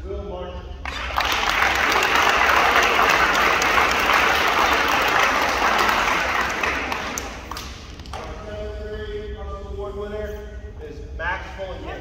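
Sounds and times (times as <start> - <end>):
crowd applauding: 0.9 - 8.3.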